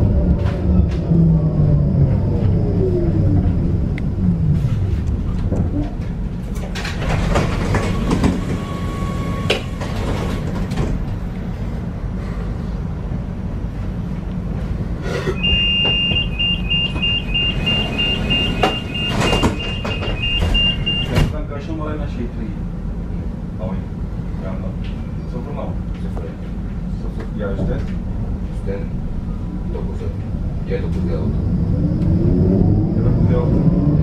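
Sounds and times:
tram equipment rumbling: 0.0 - 34.0
clunks and knocks: 5.3 - 8.7, 15.5 - 21.4
door-closing warning beeps: 15.4 - 21.4.

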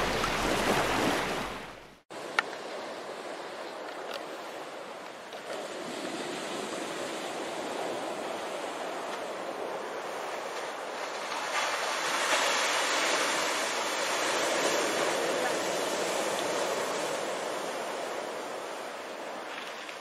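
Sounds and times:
sea surf breaking: 0.0 - 3.7, 5.4 - 20.0.

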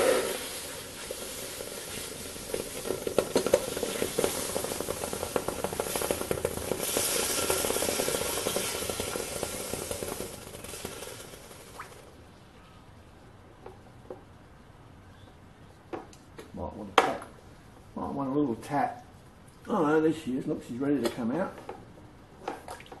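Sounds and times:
steam hissing: 0.0 - 12.0
water sizzling against hot metal: 0.0 - 12.1.

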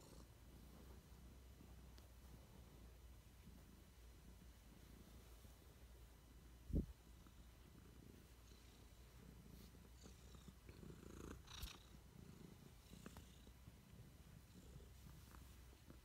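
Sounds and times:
cat purring faintly: 0.0 - 16.0.

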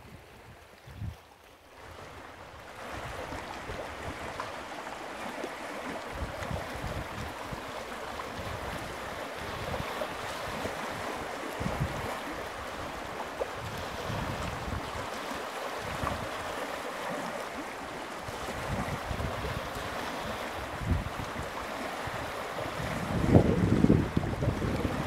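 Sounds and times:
wind gusting on microphone: 0.0 - 1.2, 5.9 - 15.2, 18.2 - 25.0
waves lapping against rocks: 0.0 - 25.0.

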